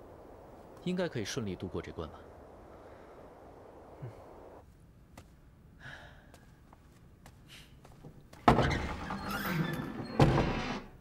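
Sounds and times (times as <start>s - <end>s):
wooden doors banging: 8.4s - 10.9s
door rattling scrape: 8.4s - 11.0s.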